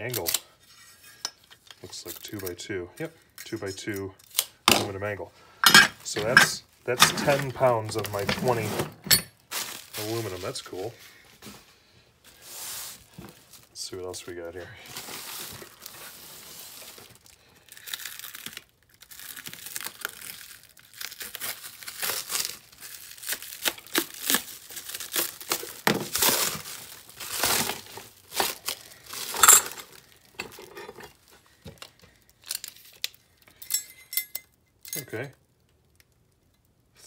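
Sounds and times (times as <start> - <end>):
plastic wrap crinkling and tearing: 0.0 - 2.6, 6.7 - 8.6, 9.3 - 11.6, 12.2 - 33.5.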